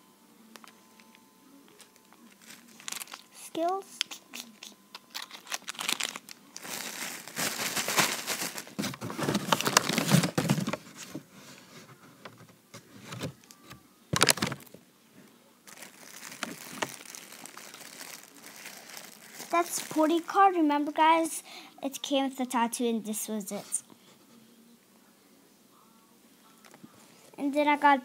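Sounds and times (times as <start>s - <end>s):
plastic wrappers crinkling: 0.5s - 11.3s, 14.2s - 14.8s, 15.6s - 20.5s.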